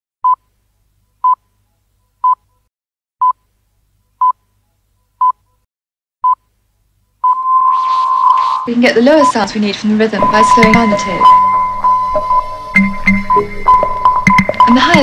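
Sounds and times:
short electronic beeps: 7.2 - 9.5, 10.2 - 15.0.

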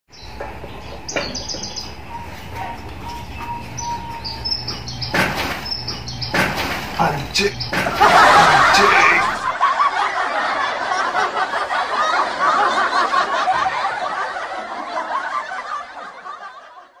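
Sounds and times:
audience laughter: 7.8 - 17.0.

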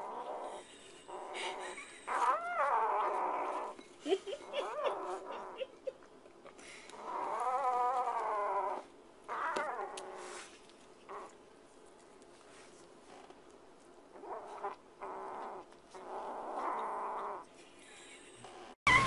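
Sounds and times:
kitten growling and yowling: 7.0 - 10.4.

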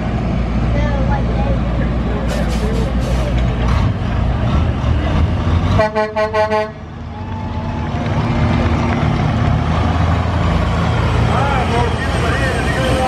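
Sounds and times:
diesel truck engine running: 0.0 - 13.0
truck horn toots: 5.7 - 6.8.

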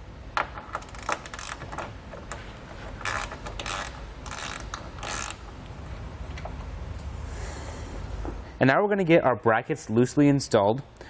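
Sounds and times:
ratchet wrench clicking: 0.8 - 1.8, 3.0 - 5.5.

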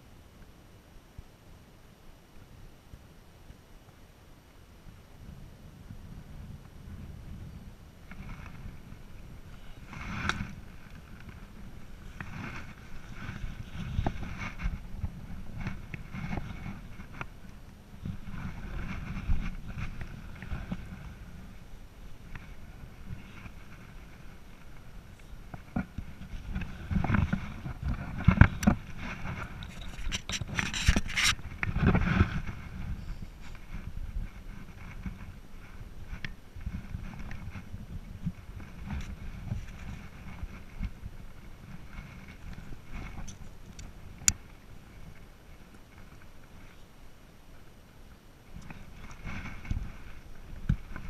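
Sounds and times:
wind rumbling on microphone: 0.0 - 51.0
clothing and gear rustling: 8.1 - 46.9, 48.6 - 51.0.

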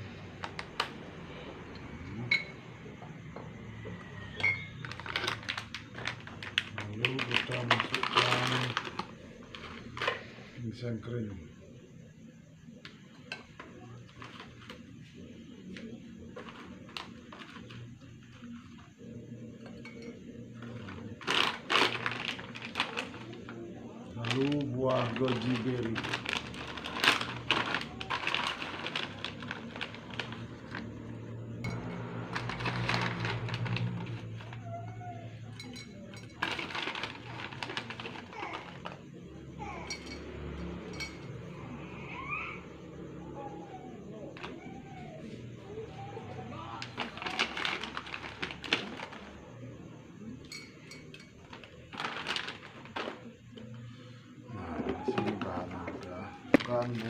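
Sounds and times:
berries clinking into glass bottles: 4.4 - 10.2, 19.6 - 30.9, 35.4 - 39.0, 50.4 - 53.3, 54.9 - 57.0
plastic packet rustling: 4.8 - 10.2, 20.6 - 30.9, 32.3 - 34.6, 36.2 - 39.0, 46.8 - 49.4, 51.4 - 53.3, 55.0 - 57.0.

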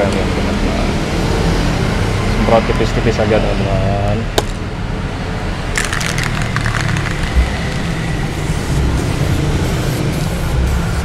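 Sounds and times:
spray paint can hissing: 5.8 - 11.0.

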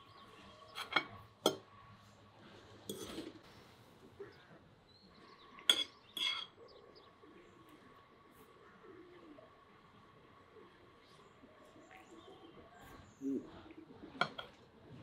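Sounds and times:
cutlery clinking on plates: 0.7 - 1.7, 2.9 - 3.3, 5.6 - 6.6, 14.2 - 14.6.

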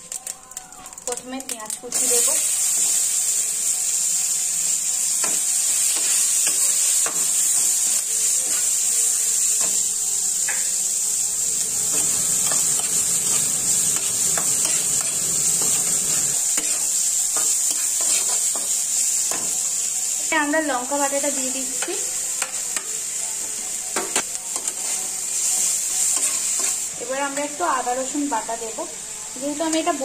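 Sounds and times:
onions sizzling in oil: 0.0 - 30.0
spatula scraping pan: 11.9 - 18.7.

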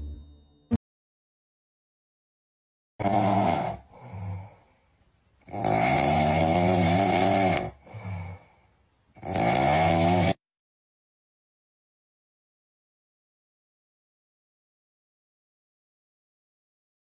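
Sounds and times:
loud snoring: 3.0 - 4.5, 5.5 - 8.4, 9.2 - 10.4
soft breath: 3.9 - 5.0, 7.8 - 8.9.

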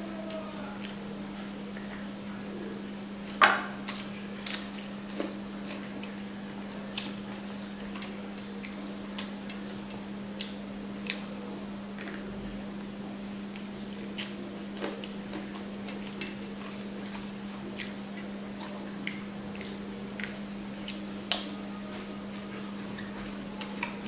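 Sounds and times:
steady low hum: 0.0 - 24.0
chewing: 3.2 - 11.3, 13.5 - 24.0.

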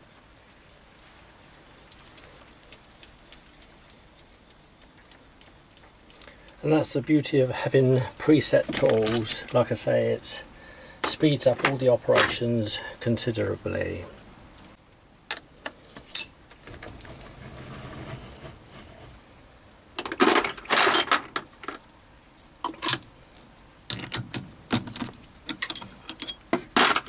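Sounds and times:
steel tooling clinking: 25.0 - 27.0.

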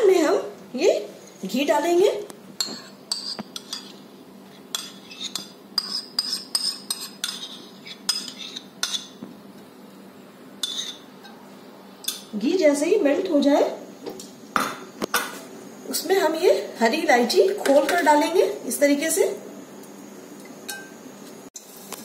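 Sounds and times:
metal spoon scraping ceramic bowl: 2.6 - 4.0, 4.7 - 9.1, 10.6 - 11.1.

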